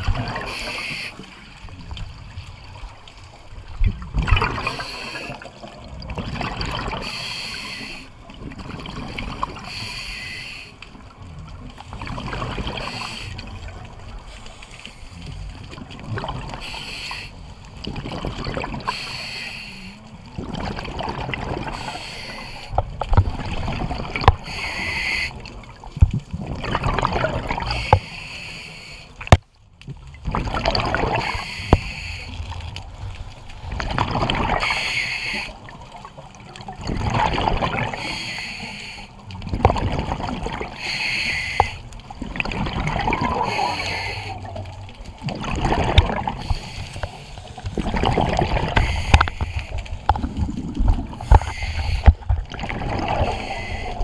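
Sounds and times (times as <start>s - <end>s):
gurgle of exhaled bubbles: 0.0s - 1.0s, 1.6s - 7.2s, 8.3s - 9.8s, 11.2s - 14.3s, 15.2s - 16.8s, 17.8s - 19.0s, 20.2s - 22.0s, 22.8s - 28.0s, 30.0s - 31.6s, 32.3s - 35.0s, 35.6s - 38.0s, 39.3s - 40.9s, 41.6s - 54.0s
diver inhaling through regulator: 0.4s - 1.3s, 7.0s - 8.2s, 9.6s - 10.8s, 12.7s - 13.5s, 16.6s - 17.5s, 18.8s - 20.0s, 21.7s - 22.8s, 24.4s - 25.5s, 27.6s - 29.2s, 31.1s - 32.4s, 34.6s - 35.7s, 37.9s - 39.2s, 40.7s - 41.9s, 43.2s - 44.5s, 46.3s - 47.6s, 48.5s - 50.1s, 51.1s - 52.3s, 52.9s - 54.0s.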